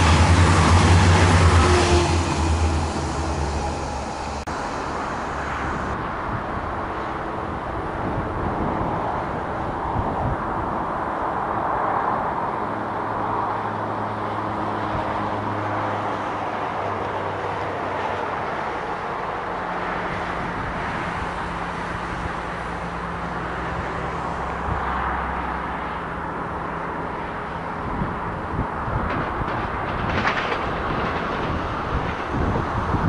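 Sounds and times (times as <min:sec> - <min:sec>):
outdoor background noise: 0:00.0 - 0:33.0.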